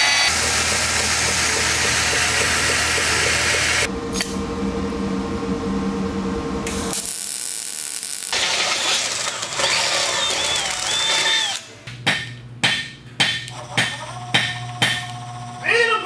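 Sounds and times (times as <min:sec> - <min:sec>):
small motor running: 0:00.0 - 0:03.9, 0:07.0 - 0:11.6, 0:13.5 - 0:15.7
mechanical noise with low hum: 0:00.8 - 0:09.6, 0:10.2 - 0:16.0
welding arc crackling: 0:06.7 - 0:11.6.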